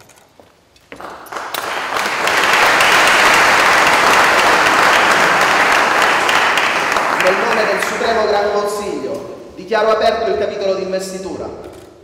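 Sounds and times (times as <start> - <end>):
audience applauding: 0.9 - 8.7.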